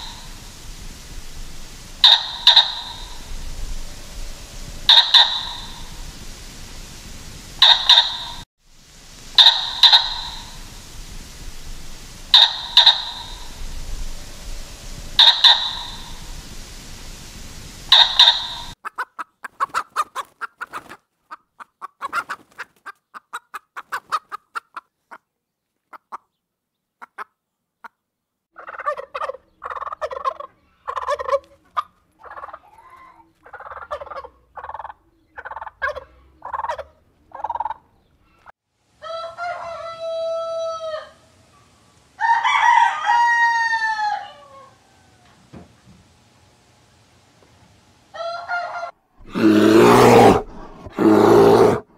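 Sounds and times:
chickens clucking: 2.0s - 3.3s, 4.9s - 5.9s, 7.6s - 8.4s, 9.4s - 10.6s, 12.3s - 13.5s, 15.2s - 16.2s, 17.9s - 25.3s, 27.0s - 28.0s, 28.6s - 38.5s
rooster crowing: 39.0s - 41.3s, 42.2s - 45.4s, 48.1s - 50.4s.

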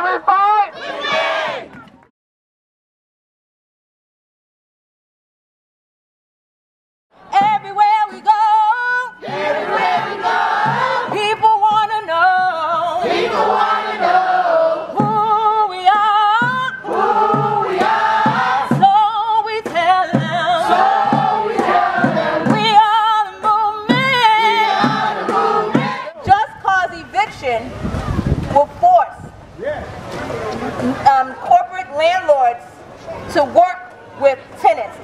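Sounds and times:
group singing: 8.2s - 26.3s.

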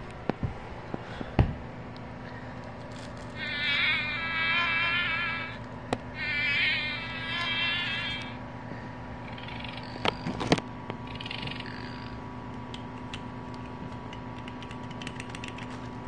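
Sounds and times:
tinny toy insect buzz: 3.4s - 5.6s, 6.2s - 8.4s.

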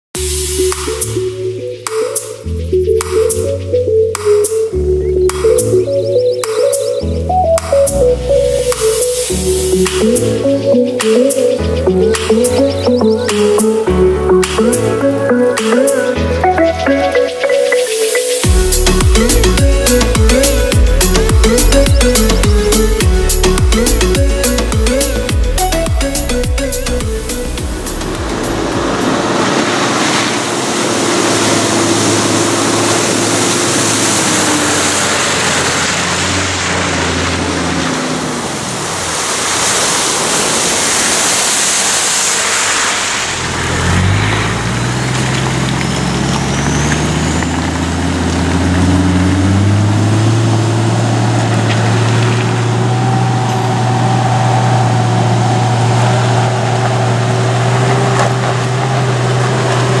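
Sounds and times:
rushing noise: 15.6s - 60.0s
four-wheel drive engine revving: 18.4s - 60.0s.

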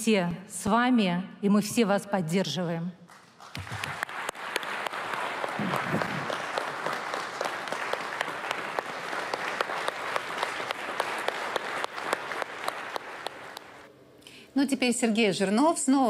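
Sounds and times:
audience applauding: 3.1s - 13.9s.

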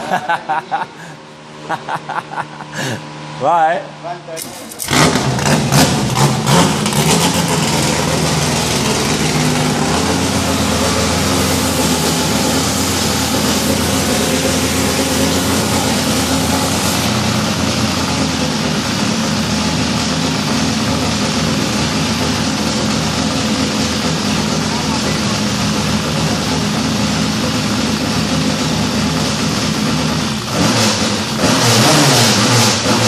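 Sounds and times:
car engine running steadily: 0.0s - 33.0s.

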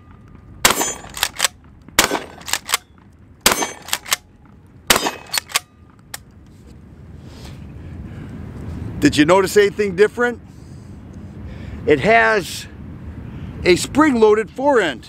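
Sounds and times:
shotgun shots: 0.6s - 4.2s, 4.9s - 5.7s.

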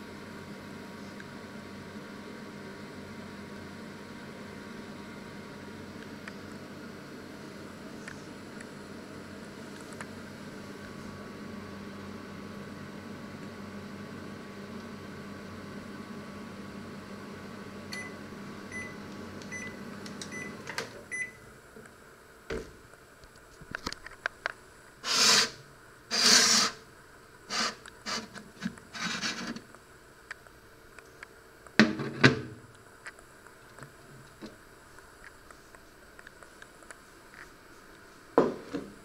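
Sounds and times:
microwave oven humming: 0.0s - 24.0s
microwave beeping: 17.8s - 21.5s
plate scraping on oven floor: 25.0s - 26.8s, 27.5s - 29.6s.

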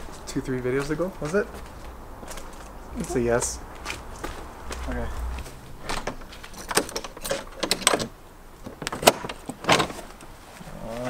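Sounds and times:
footsteps: 0.0s - 7.5s
keys jangling in a lock: 6.0s - 8.1s.

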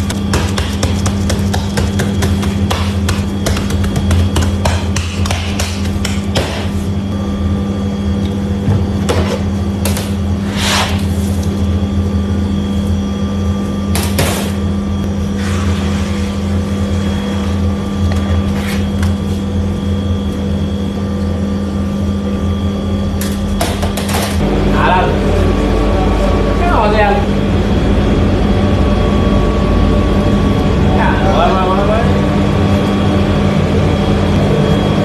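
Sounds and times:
dough and mat rustling and knocking: 0.0s - 6.8s
kitchen equipment hum: 0.0s - 35.0s.

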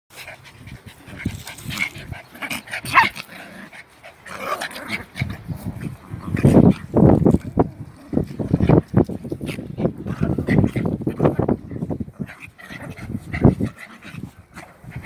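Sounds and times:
dogs yipping and whimpering: 0.3s - 5.6s
dog yelping: 2.8s - 3.2s.

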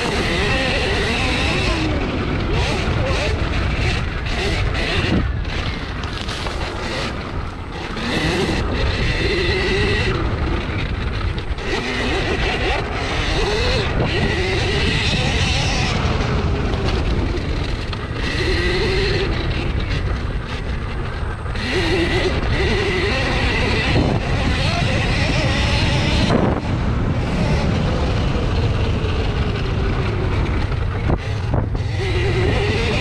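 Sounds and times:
electric motor whining: 0.0s - 33.0s
low rumble of wind: 0.0s - 33.0s.

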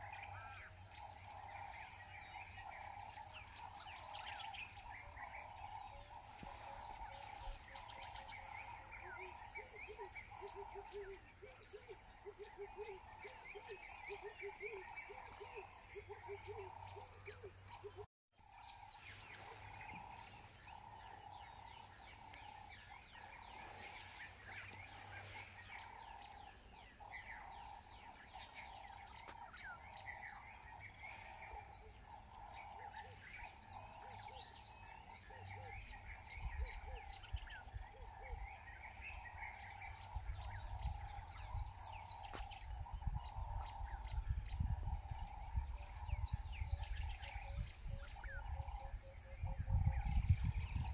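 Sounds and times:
birds chirping and calling: 0.0s - 50.9s.

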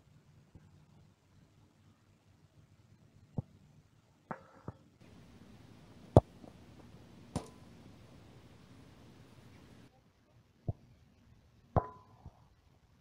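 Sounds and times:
football kicked hard: 5.0s - 8.8s
light knocks: 5.1s - 8.8s
sharp ringing impact: 5.1s - 9.8s.

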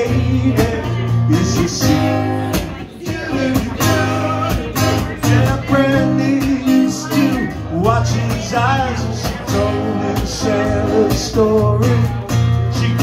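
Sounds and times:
acoustic guitar strumming: 0.0s - 13.0s
man singing: 0.0s - 13.0s.

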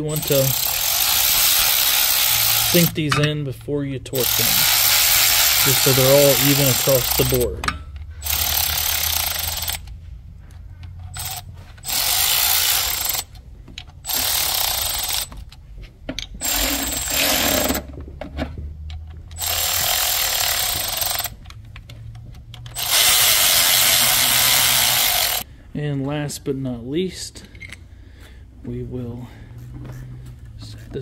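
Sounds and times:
power tool bursts: 0.0s - 3.1s, 4.2s - 7.5s, 8.2s - 9.8s, 11.1s - 13.3s, 14.0s - 15.3s, 16.4s - 17.9s, 19.4s - 21.3s, 22.7s - 25.4s.

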